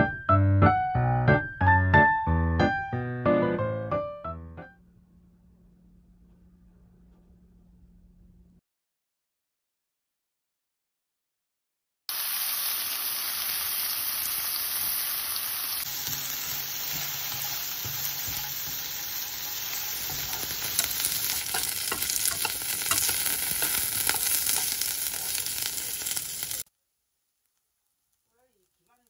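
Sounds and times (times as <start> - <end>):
food sizzling in hot oil: 12.1 - 26.7
spatula stirring in a pan: 15.8 - 26.6.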